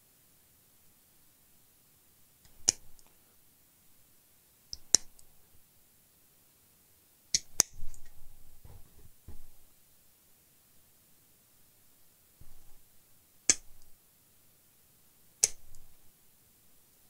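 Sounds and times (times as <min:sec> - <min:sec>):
soft handling noise: 0:07.8 - 0:09.8.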